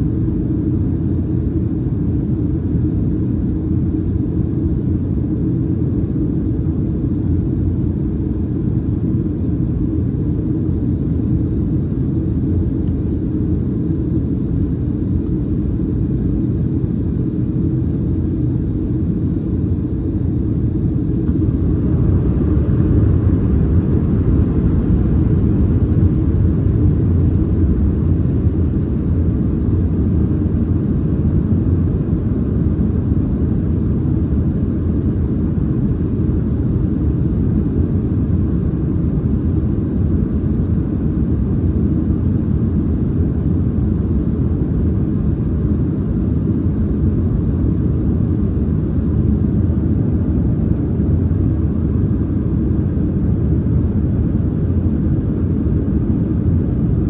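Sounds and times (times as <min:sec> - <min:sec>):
airplane cabin engine rumble: 0:00.0 - 0:57.0.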